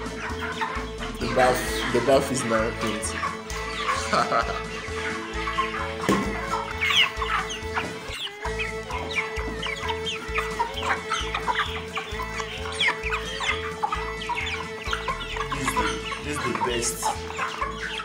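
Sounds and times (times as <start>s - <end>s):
chickens peeping: 0.0s - 18.0s
background music with bass beat: 3.3s - 16.5s.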